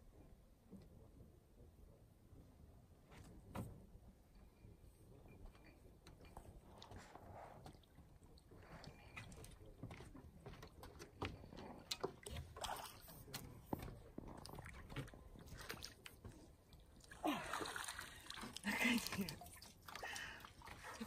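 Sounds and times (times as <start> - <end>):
water sloshing: 8.6 - 21.0.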